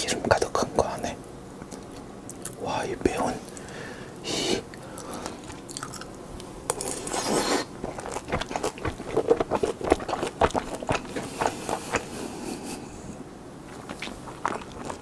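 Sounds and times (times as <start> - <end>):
wet crunchy chewing: 4.9 - 12.2, 13.7 - 15.0.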